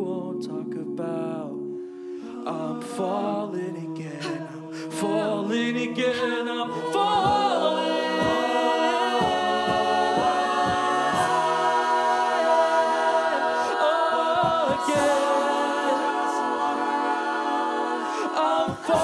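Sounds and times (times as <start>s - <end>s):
a cappella group singing harmony: 0.0s - 19.0s
vocal percussion kick: 6.8s - 19.0s.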